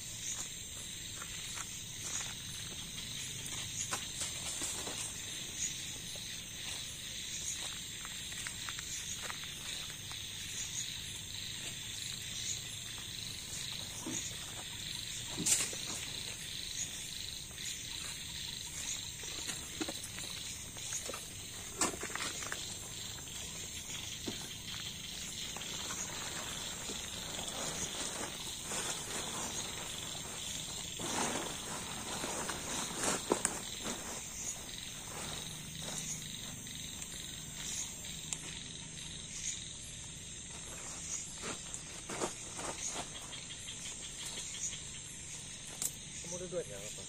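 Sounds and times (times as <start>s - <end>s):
crickets and insects trilling: 0.0s - 47.0s
plastic tarp rustling: 25.8s - 35.4s.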